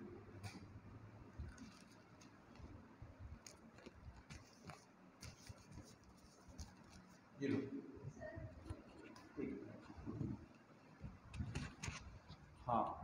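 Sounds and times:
handling noises: 1.3s - 7.3s.

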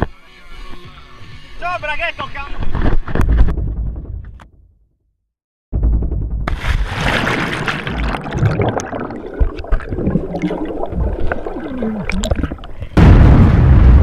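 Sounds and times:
loud deep blast: 5.8s - 8.8s, 13.0s - 14.0s
water gurgling underwater: 6.6s - 13.0s.

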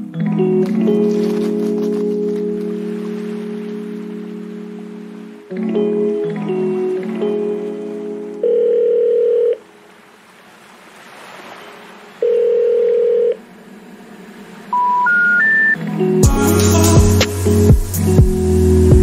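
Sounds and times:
music: 0.0s - 8.5s, 15.7s - 19.0s
rising telephone beeps: 8.4s - 9.6s, 12.2s - 13.4s, 14.8s - 15.8s
steady telephone tone: 8.4s - 9.6s, 12.2s - 13.4s, 14.7s - 15.8s.

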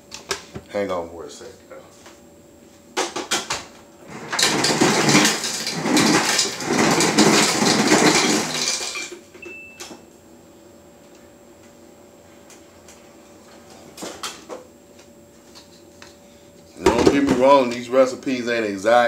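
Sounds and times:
ice cubes clattering: 4.1s - 9.2s.

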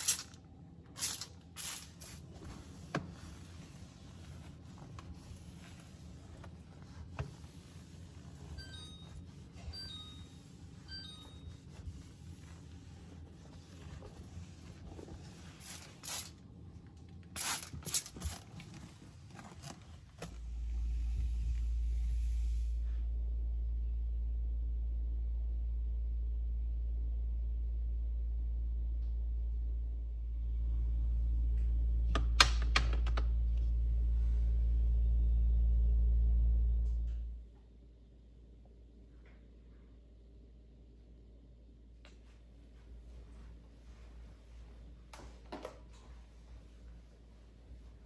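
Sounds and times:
spray bottle squirting: 0.0s - 0.3s, 1.0s - 2.2s, 15.6s - 16.3s, 17.4s - 18.4s
steady low hum: 0.0s - 48.0s
cloth rubbing: 1.0s - 16.4s.

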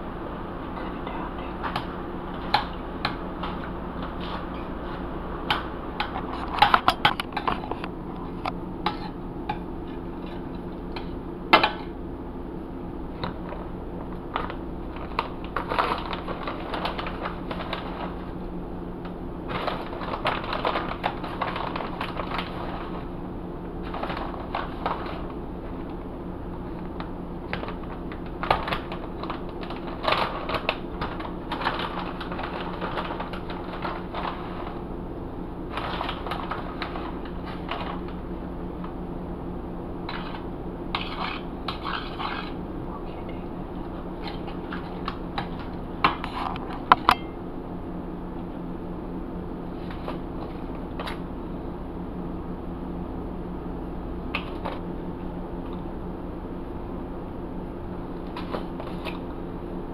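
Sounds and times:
steady low hum: 0.0s - 59.9s
metal spoon scraping skillet: 8.8s - 9.2s.

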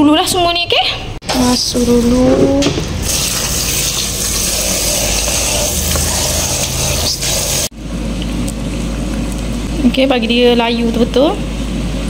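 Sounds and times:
tap water spraying into basin: 3.0s - 7.7s.

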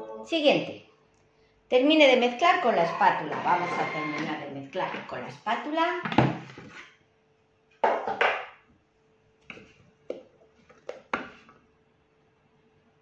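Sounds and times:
spatula scraping in metal bowl: 2.6s - 5.3s.

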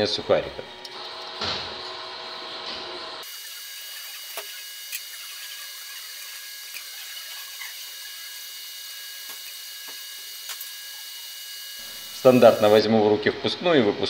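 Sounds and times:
steady hiss: 11.8s - 12.9s.

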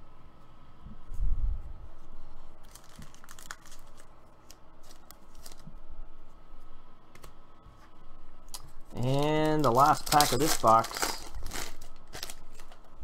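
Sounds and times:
plastic sleeve crinkling: 2.6s - 5.7s, 8.9s - 12.9s.

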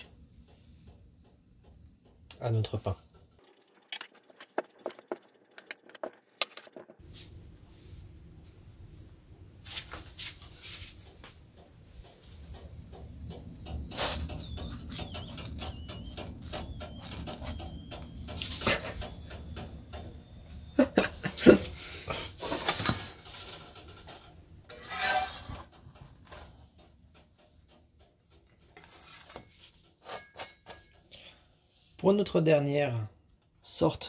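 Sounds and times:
metal spatula scraping pan: 24.7s - 26.4s.

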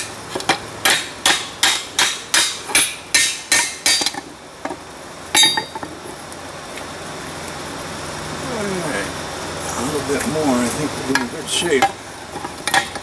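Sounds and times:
hammer striking hot steel: 0.0s - 4.3s, 5.3s - 5.8s
ringing clang of steel on anvil: 5.4s - 5.7s.

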